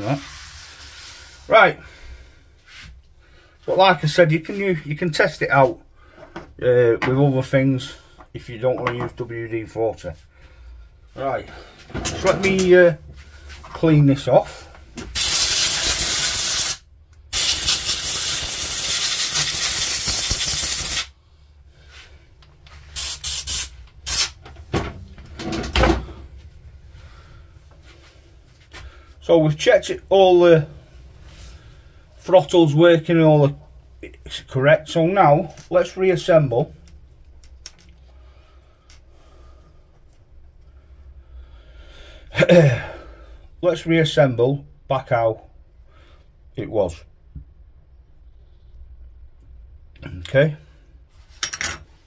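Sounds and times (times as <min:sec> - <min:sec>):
aerosol spray can hissing: 0:15.2 - 0:21.1, 0:22.9 - 0:24.4.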